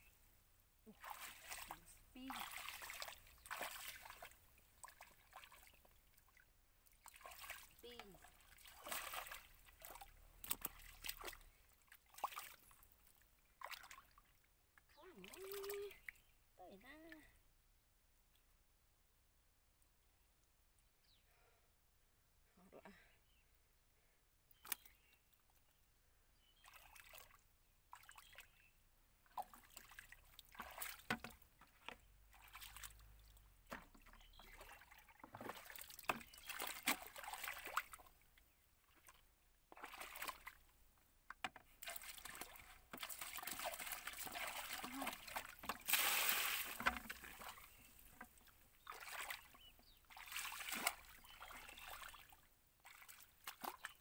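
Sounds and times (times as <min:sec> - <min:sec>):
muddy water sloshing and splashing: 0:00.9 - 0:16.3, 0:26.6 - 0:40.7, 0:41.4 - 0:54.0.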